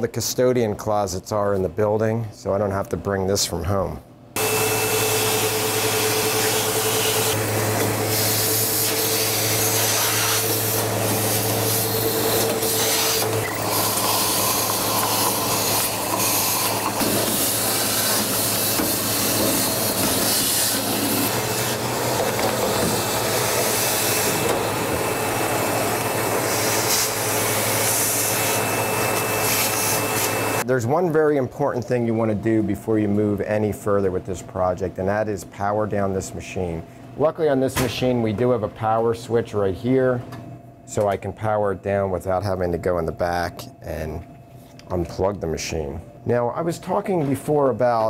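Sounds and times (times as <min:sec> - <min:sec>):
vacuum cleaner running: 0:04.4 - 0:30.7.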